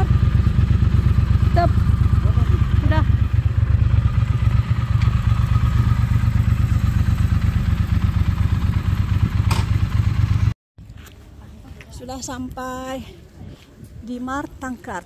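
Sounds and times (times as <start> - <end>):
motorcycle engine idling: 0.0 - 10.6.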